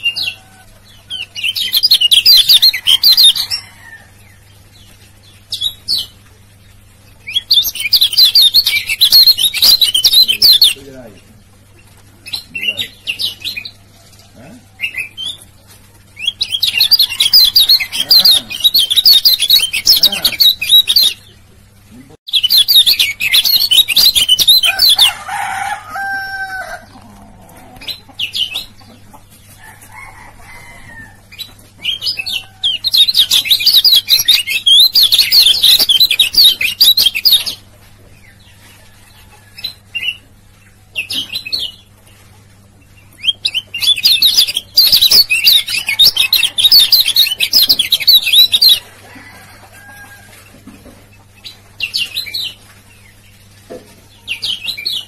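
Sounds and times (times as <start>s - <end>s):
bird singing rapid chattering song: 0.0s - 3.6s, 4.2s - 13.8s, 16.2s - 21.4s, 22.3s - 25.1s, 31.3s - 37.7s, 43.0s - 48.9s.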